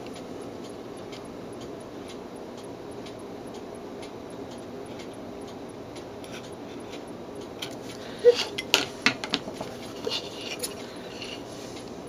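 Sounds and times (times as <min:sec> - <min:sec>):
clock ticking: 0:00.0 - 0:07.9
low room hum: 0:00.0 - 0:12.0.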